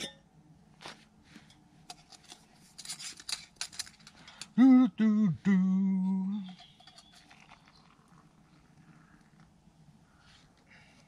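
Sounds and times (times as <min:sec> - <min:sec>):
metal cookware clicking and scraping: 0:01.9 - 0:04.5, 0:06.5 - 0:07.6
man humming: 0:04.6 - 0:06.6.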